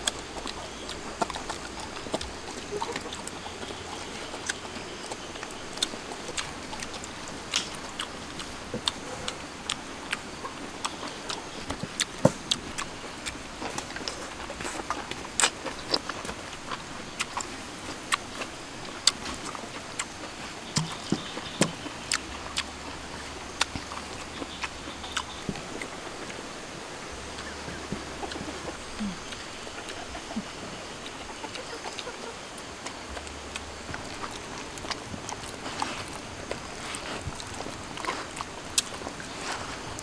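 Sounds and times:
person chewing and lip smacking: 0.0s - 40.0s.

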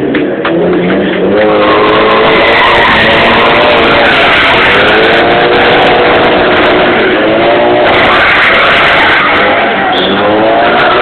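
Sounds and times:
car engine at high revs: 0.0s - 11.0s
tyre squeal: 1.0s - 7.2s, 7.8s - 11.0s.

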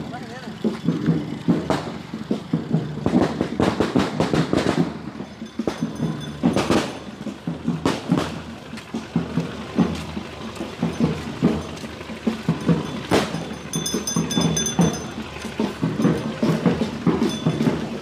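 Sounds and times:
firecrackers cracking and banging: 0.9s - 9.9s, 12.7s - 13.6s.

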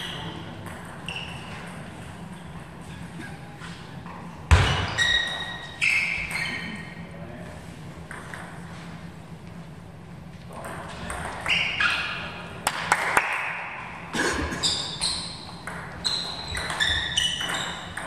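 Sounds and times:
low hum of hall: 0.0s - 18.0s
table tennis ball bouncing: 0.5s - 1.8s, 15.0s - 18.0s.

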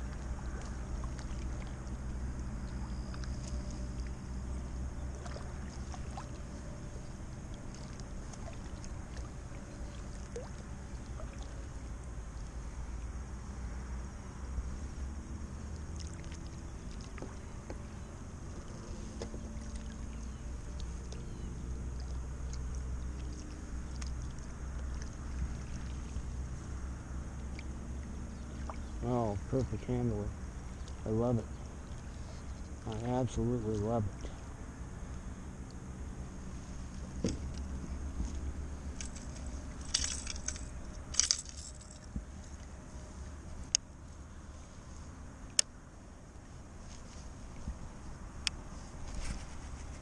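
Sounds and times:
small splashes and drips: 0.0s - 4.2s, 5.1s - 6.5s, 7.4s - 11.9s, 15.7s - 17.5s, 19.5s - 21.3s, 21.9s - 29.7s, 30.6s - 34.4s
steady low hum: 0.0s - 50.0s
paddle stroking through water: 5.1s - 11.6s.

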